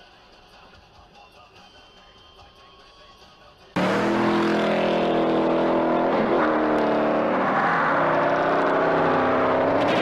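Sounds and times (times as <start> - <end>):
car engine revving: 3.8 - 10.0.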